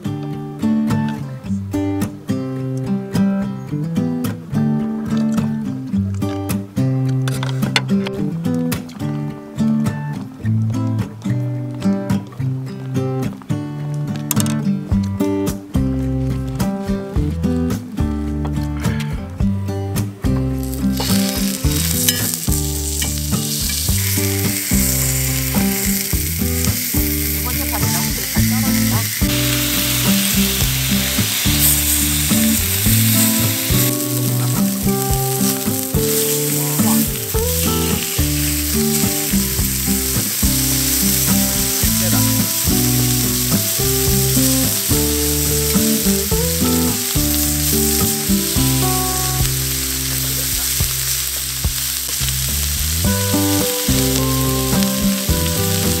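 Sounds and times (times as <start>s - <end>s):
background music: 0.0s - 56.0s
meat sizzling on grill: 20.5s - 56.0s.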